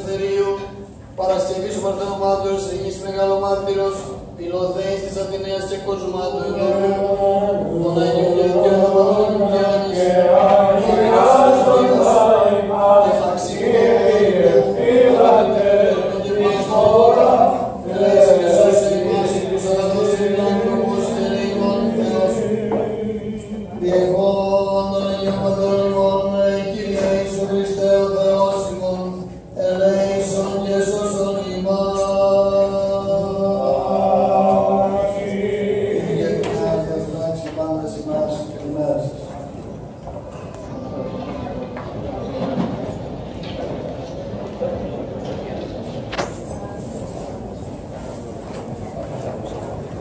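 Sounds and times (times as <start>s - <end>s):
men chanting: 4.5s - 37.4s.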